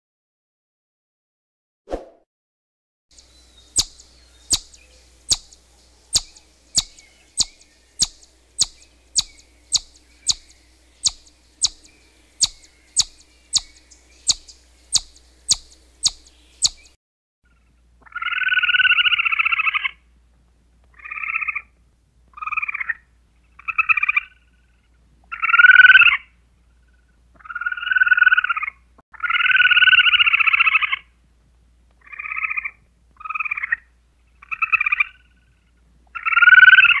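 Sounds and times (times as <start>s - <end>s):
animal rapid pulsed trills: 3.2s - 17.0s.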